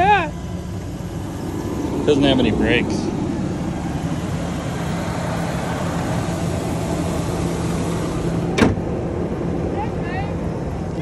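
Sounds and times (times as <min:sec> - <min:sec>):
car engine idling: 0:00.0 - 0:11.0
car hood slamming shut: 0:08.5 - 0:08.9.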